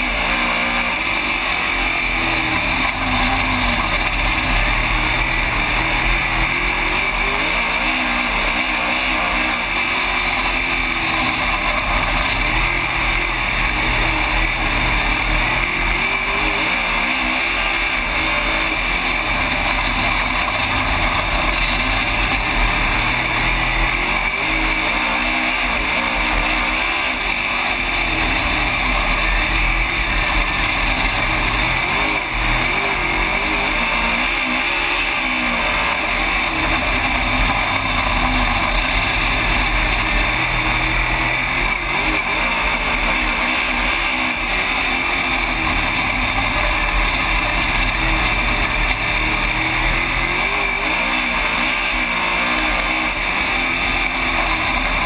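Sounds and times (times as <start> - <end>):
race car engine from cockpit: 0.0 - 55.0.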